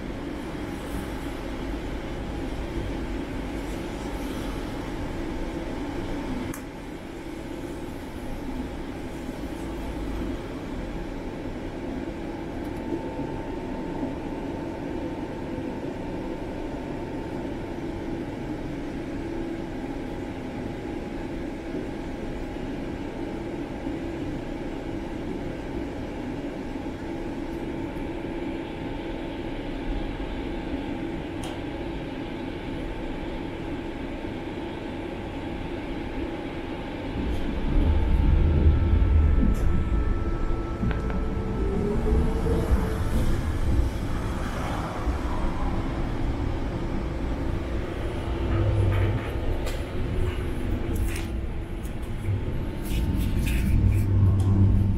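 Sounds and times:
constant hum and whine: 0.0s - 54.9s
tram wheels rumbling on rails: 17.4s - 54.9s.

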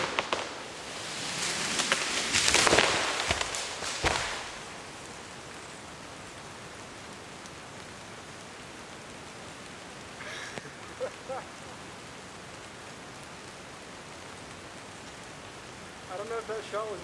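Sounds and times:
steady rain hiss: 0.0s - 17.0s.

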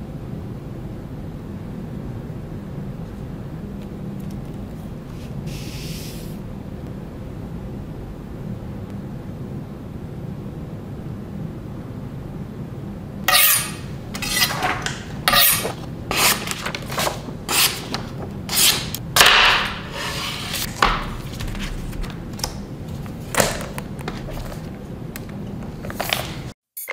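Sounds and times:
blade slicing through paper: 13.6s - 21.7s
hands rubbing and scraping packaging: 14.2s - 19.0s, 19.7s - 24.8s.

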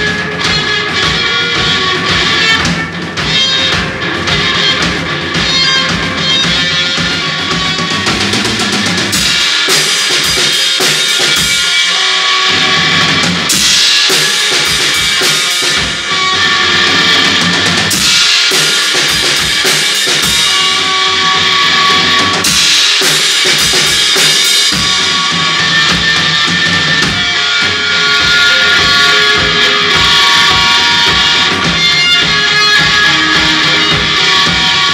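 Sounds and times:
bass guitar: 0.0s - 34.9s
distorted electric guitar: 0.0s - 34.9s
drum kit pounding: 0.0s - 34.9s
cymbal crash: 8.7s - 31.8s.

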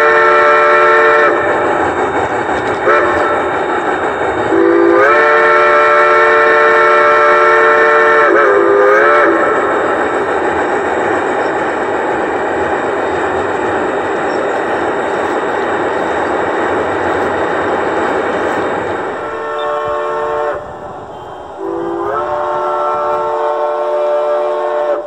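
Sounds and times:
model train whistle chord: 0.0s - 1.7s, 2.8s - 3.5s, 4.5s - 9.9s, 19.0s - 25.0s
model train running: 0.0s - 25.0s.

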